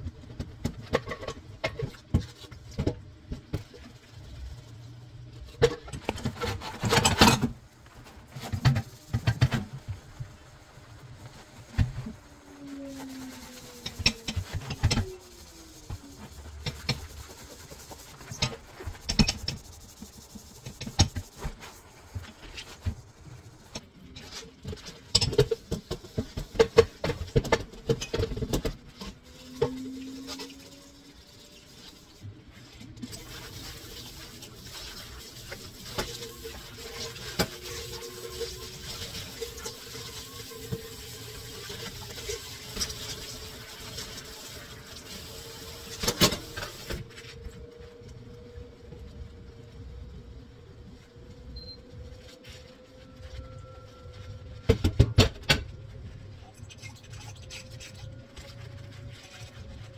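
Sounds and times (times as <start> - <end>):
running water: 29.3 - 47.0.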